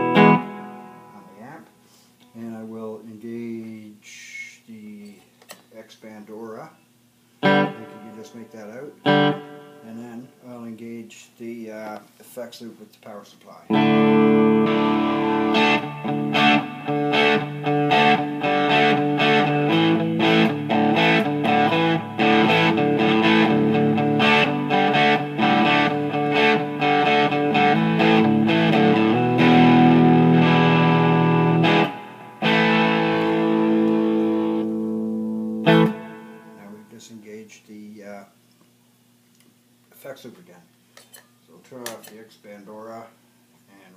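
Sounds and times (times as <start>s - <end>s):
distorted electric guitar: 0.0s - 1.3s, 7.4s - 8.4s, 9.0s - 9.9s, 13.7s - 36.8s.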